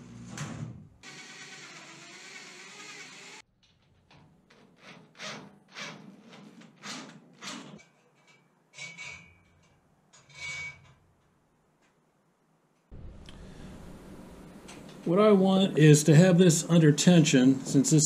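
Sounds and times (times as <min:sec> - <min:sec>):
cordless drill running: 0:01.0 - 0:03.4.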